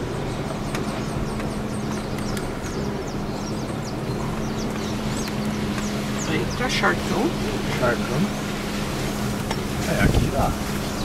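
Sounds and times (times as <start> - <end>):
birds chirping: 0.0 - 11.0
car engine hum: 0.0 - 11.0
tyre and road rumble: 0.0 - 11.0.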